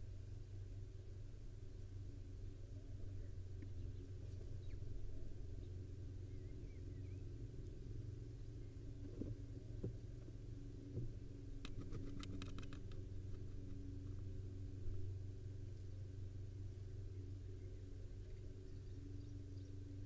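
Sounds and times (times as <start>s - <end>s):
steady low hum: 0.0s - 20.0s
sharp clicks: 11.6s - 13.8s.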